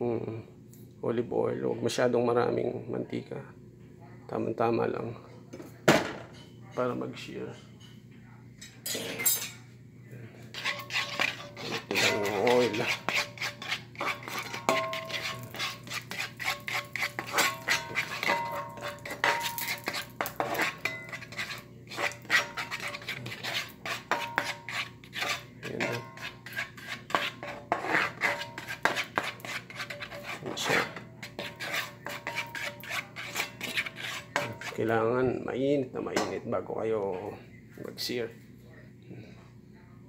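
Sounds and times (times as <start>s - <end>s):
utensil scraping cast iron skillet: 10.4s - 35.1s.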